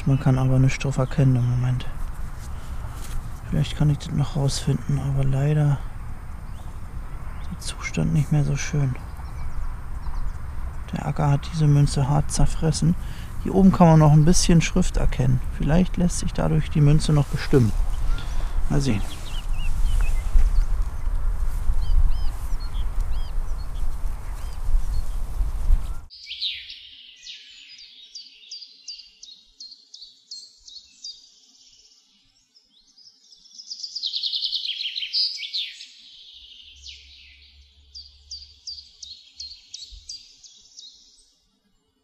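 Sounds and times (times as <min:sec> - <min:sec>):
songbird chirping and trilling: 0:00.0 - 0:42.0
microphone handling rumble: 0:01.9 - 0:26.1.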